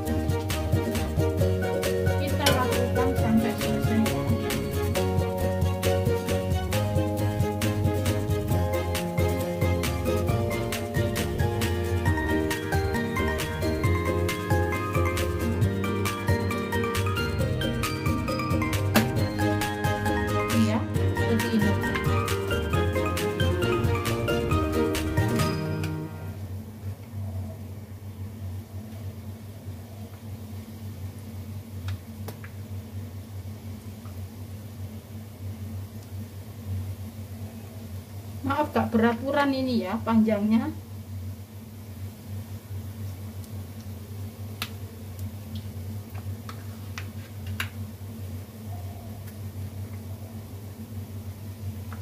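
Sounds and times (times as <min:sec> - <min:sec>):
low hum: 0:00.0 - 0:28.9
batter popping in oil: 0:31.8 - 0:32.7.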